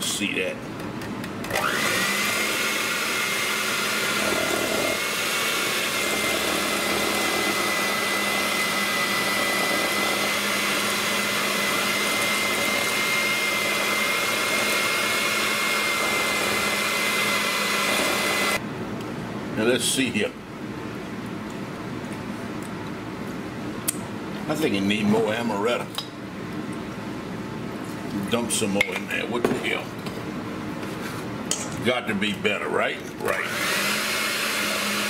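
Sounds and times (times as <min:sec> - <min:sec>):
electric hand mixer whining: 0:01.4 - 0:18.6, 0:33.2 - 0:35.0.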